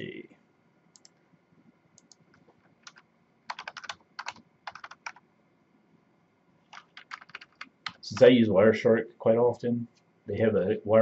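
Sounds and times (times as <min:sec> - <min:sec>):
typing on a keyboard: 0:02.8 - 0:05.2, 0:06.7 - 0:08.2.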